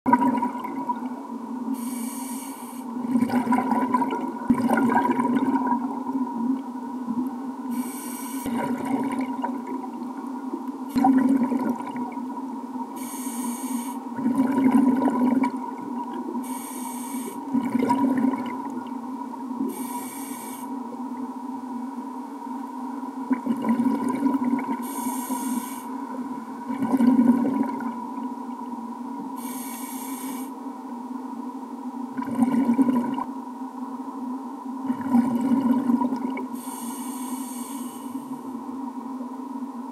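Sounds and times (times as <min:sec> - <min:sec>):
exhaled bubbles rushing: 0:00.1 - 0:01.2, 0:03.0 - 0:06.0, 0:08.5 - 0:10.2, 0:10.9 - 0:12.2, 0:14.2 - 0:16.4, 0:17.5 - 0:18.9, 0:23.3 - 0:24.8, 0:26.7 - 0:28.2, 0:32.2 - 0:33.3, 0:34.9 - 0:36.5
steady hum: 0:00.1 - 0:39.9
regulator inhale hiss: 0:01.7 - 0:03.0, 0:07.7 - 0:08.6, 0:12.9 - 0:14.2, 0:16.4 - 0:17.5, 0:19.6 - 0:20.9, 0:24.8 - 0:26.2, 0:29.4 - 0:30.6, 0:36.5 - 0:38.5.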